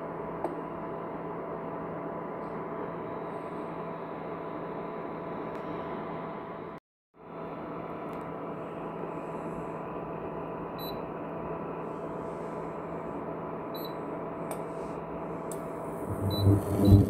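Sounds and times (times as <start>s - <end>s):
induction cooktop whirring and humming: 0.0s - 17.0s
short high beeps: 16.2s - 17.0s.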